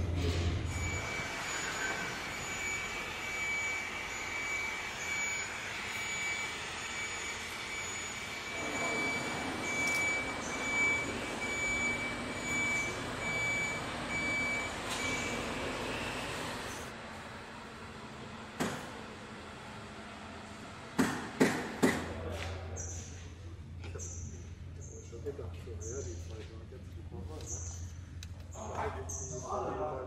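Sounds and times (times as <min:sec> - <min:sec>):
high electronic warning beeper: 0:00.7 - 0:16.2.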